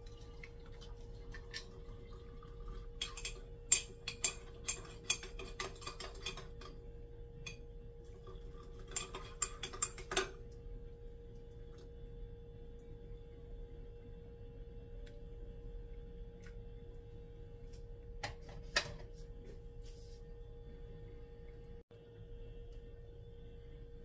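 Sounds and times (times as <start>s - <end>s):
hot water pouring: 0.0s - 6.5s
faint hum: 0.0s - 24.0s
kitchenware clinking: 3.0s - 6.8s, 8.5s - 10.4s.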